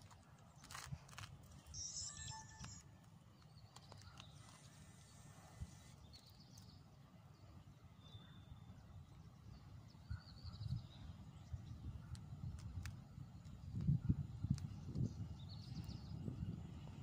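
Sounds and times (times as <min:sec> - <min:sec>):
faint bird chirps: 0:01.6 - 0:12.2.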